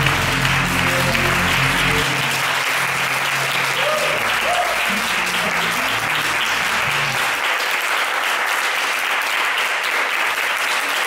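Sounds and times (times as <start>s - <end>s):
low music notes: 0.0s - 7.4s
audience applauding: 0.0s - 11.0s.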